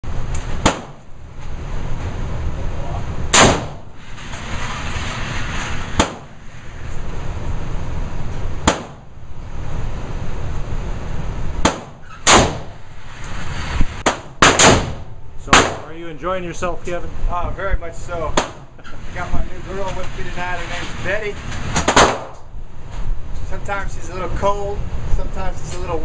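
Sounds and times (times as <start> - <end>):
steady low rumble: 0.0 - 26.0
rifle shots indoors: 0.4 - 1.0, 3.3 - 3.9, 5.9 - 6.4, 8.6 - 9.1, 11.6 - 12.8, 14.0 - 15.8, 21.7 - 22.4.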